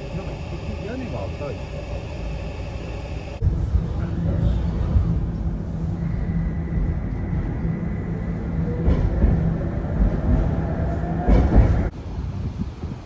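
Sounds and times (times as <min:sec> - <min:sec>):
rising whine: 0:00.0 - 0:03.7
tram rumble on rails: 0:00.0 - 0:13.0.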